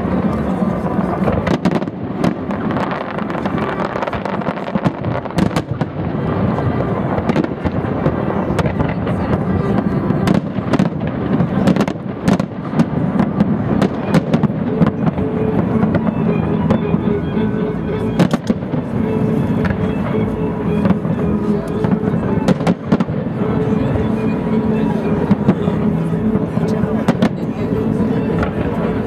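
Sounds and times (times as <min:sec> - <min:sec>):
continuous din: 0:00.0 - 0:29.0.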